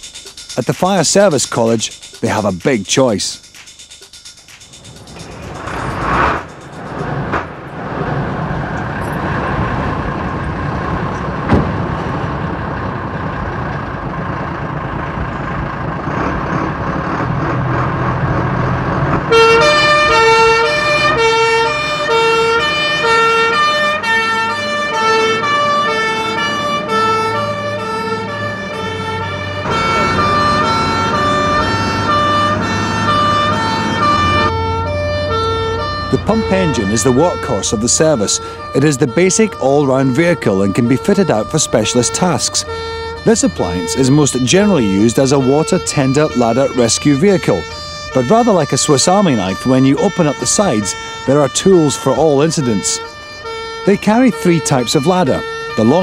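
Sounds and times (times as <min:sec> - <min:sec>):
fire engine engine running: 0:00.0 - 0:56.0
two-tone siren: 0:19.2 - 0:56.0.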